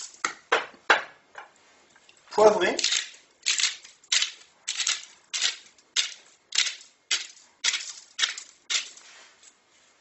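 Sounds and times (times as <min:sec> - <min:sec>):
pepper mill grinding: 0:02.7 - 0:09.1.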